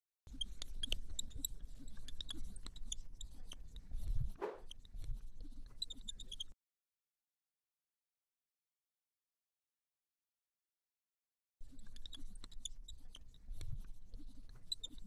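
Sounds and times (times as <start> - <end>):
marker pen on whiteboard: 0.3 - 6.6, 11.6 - 15.0.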